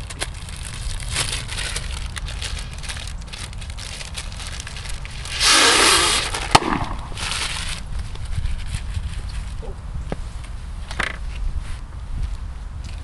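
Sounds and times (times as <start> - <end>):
paper napkin crinkling: 0.0 - 9.6
person blowing nose: 5.3 - 6.6.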